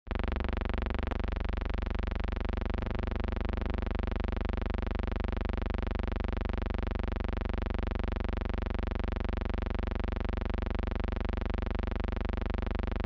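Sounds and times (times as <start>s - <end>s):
pulsing electrical buzz: 2.5s - 4.6s.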